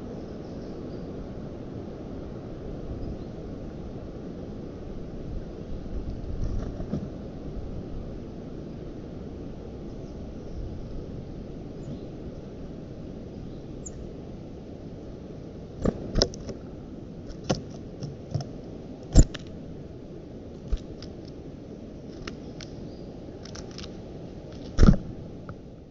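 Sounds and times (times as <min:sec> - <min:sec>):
steady low hiss: 0:00.0 - 0:25.9
birds pecking at sticks: 0:15.8 - 0:19.5, 0:20.6 - 0:21.4, 0:22.0 - 0:25.0.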